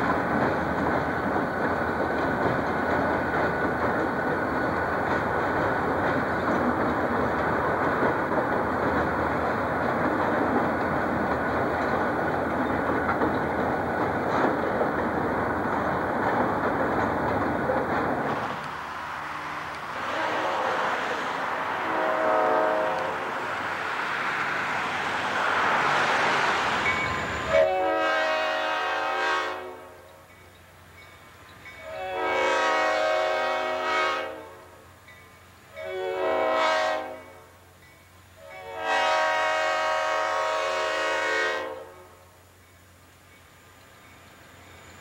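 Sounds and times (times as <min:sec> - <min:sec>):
rushing rail noise: 0:00.0 - 0:45.0
train air horn blasts: 0:19.3 - 0:23.4, 0:27.5 - 0:30.2, 0:31.8 - 0:34.8, 0:35.7 - 0:37.6, 0:38.4 - 0:42.4.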